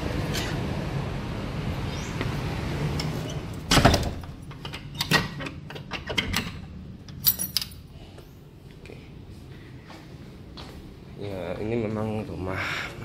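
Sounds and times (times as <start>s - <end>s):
outside background noise: 0.0s - 13.0s
lock clicking and rattling: 3.0s - 7.8s.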